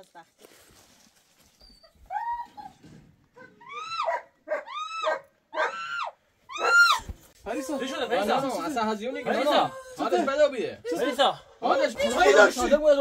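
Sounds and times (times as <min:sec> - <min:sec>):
animal crying out: 0:03.4 - 0:08.2, 0:09.1 - 0:10.2.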